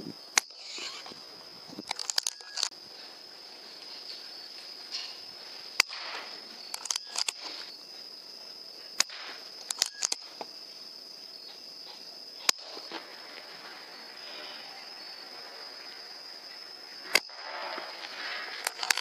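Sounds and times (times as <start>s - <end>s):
crickets chirping: 0.0s - 19.0s
sharp cracks: 1.8s - 2.7s, 5.8s - 7.6s, 9.0s - 10.5s, 17.0s - 19.0s.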